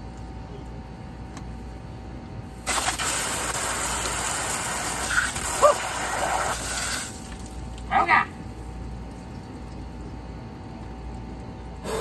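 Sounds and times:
water spraying from tire valve: 2.6 - 7.6.

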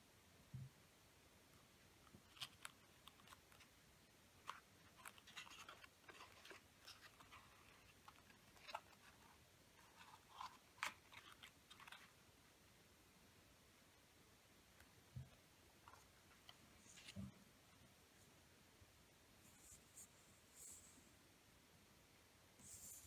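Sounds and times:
paper crinkling: 2.1 - 3.7, 4.4 - 12.2.

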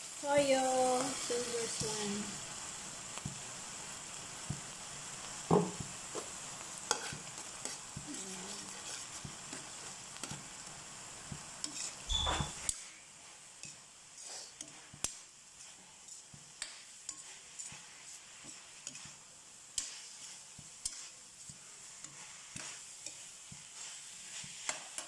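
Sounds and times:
meat sizzling in a pan: 0.0 - 25.0
thump: 5.5 - 5.9
metal spatula scraping a pan: 6.8 - 10.7, 11.6 - 25.0.

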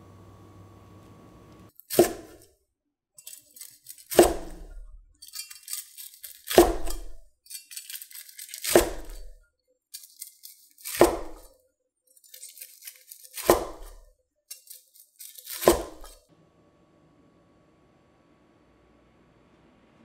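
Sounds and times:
cleaver slicing crispy cutlet: 3.3 - 9.4, 10.0 - 11.5, 12.2 - 16.2.

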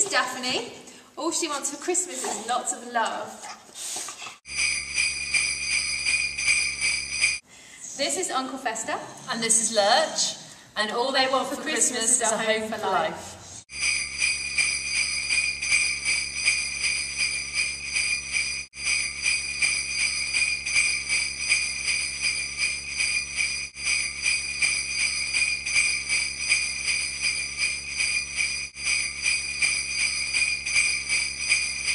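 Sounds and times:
sleigh bells jingling: 4.4 - 7.4, 13.7 - 31.9.

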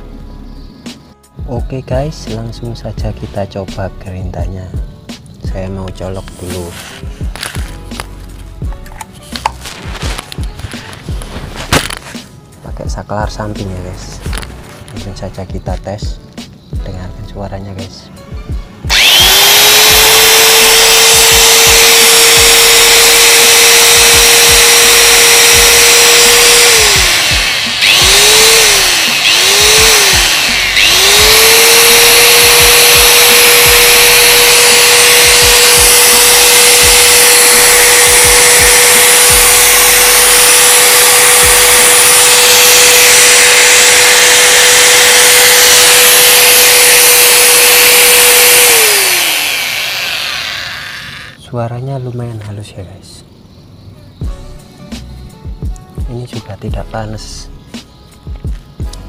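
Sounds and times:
angle grinder whining: 18.9 - 51.5.

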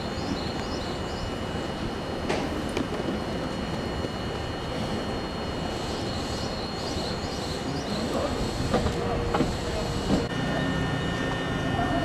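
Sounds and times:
high whine: 0.0 - 12.0
railcar equipment humming: 0.0 - 12.0
faint voices: 7.5 - 12.0.

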